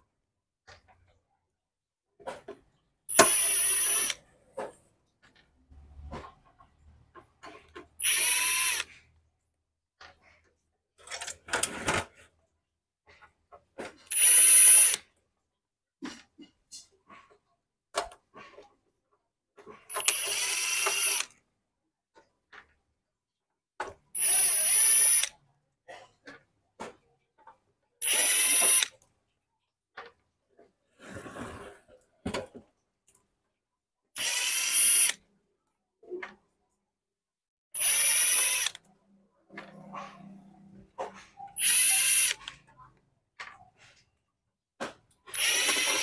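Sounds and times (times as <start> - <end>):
cordless driver whirring: 3.1 - 4.2, 8.0 - 9.0, 14.1 - 15.0, 19.9 - 21.4, 24.1 - 25.3, 28.0 - 28.9, 34.2 - 35.2, 37.8 - 38.9, 41.6 - 42.6, 45.3 - 46.0
small clicks and handling knocks: 22.1 - 23.0.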